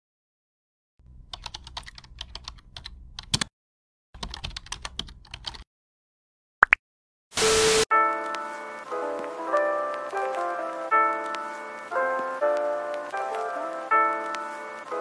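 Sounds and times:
keyboard typing: 1.3 - 3.5, 4.2 - 5.6.

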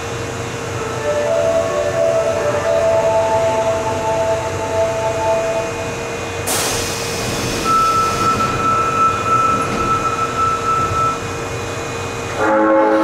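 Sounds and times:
train electrical hum: 0.0 - 13.0
air hiss: 6.5 - 8.2
high beep: 7.6 - 11.2.

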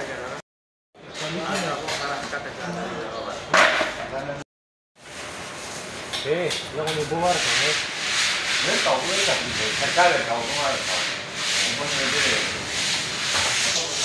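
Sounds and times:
men talking in background: 1.0 - 4.4, 6.2 - 7.8, 8.6 - 12.6, 13.6 - 14.0
rough rubbing noise: 7.1 - 14.0.

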